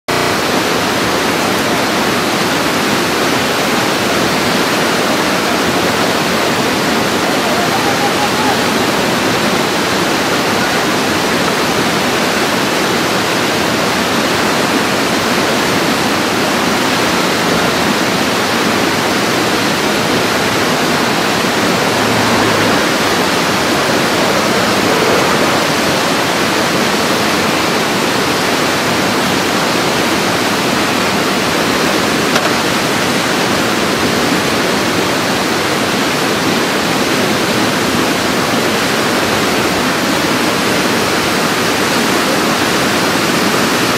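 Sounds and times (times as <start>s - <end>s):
whitewater rapids rushing: 0.1s - 43.9s.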